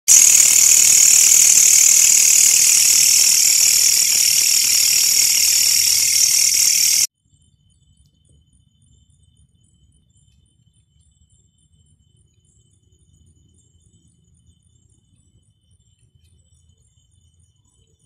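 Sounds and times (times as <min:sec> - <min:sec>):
night insects buzzing: 0:00.1 - 0:07.1.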